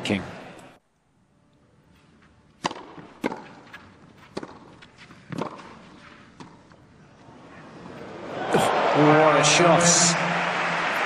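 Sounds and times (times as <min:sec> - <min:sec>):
racket striking tennis ball: 0:02.6 - 0:06.7
tennis ball bouncing: 0:02.6 - 0:06.8.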